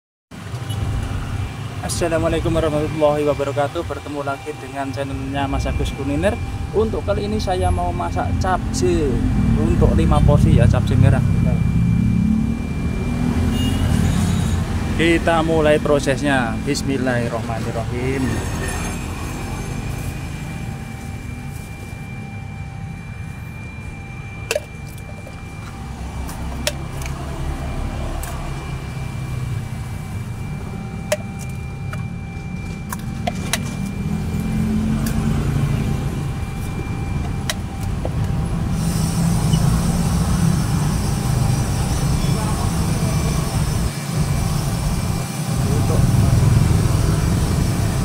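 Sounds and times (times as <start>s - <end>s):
gas burner roaring: 0.4s - 48.0s
loud hiss: 38.7s - 47.7s.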